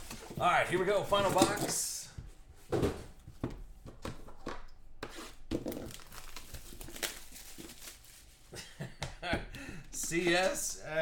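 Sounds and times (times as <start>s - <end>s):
cardboard packaging rustling and tapping: 2.7s - 8.0s.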